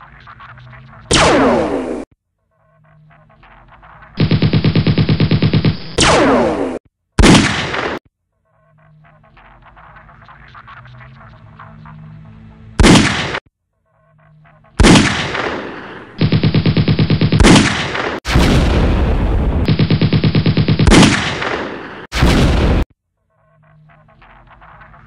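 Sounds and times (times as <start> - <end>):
single gunshots: 1.1 - 2.1, 4.2 - 8.0, 12.8 - 13.4, 14.8 - 22.9
machine-gun fire: 4.2 - 8.0, 12.8 - 13.4, 14.8 - 22.9
heavy blasts: 14.8 - 22.9.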